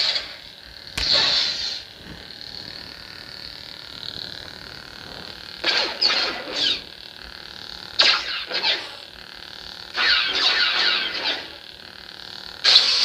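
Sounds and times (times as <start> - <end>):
lightsaber electronic hum: 0.0 - 13.0
lightsaber crack: 0.9 - 1.9, 5.6 - 6.9, 8.0 - 9.0, 10.0 - 11.5.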